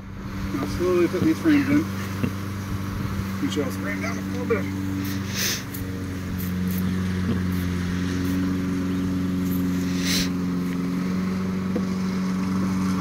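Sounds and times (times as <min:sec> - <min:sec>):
honeybees buzzing: 0:00.0 - 0:13.0
spray bottle hiss: 0:05.0 - 0:05.8, 0:06.4 - 0:06.8.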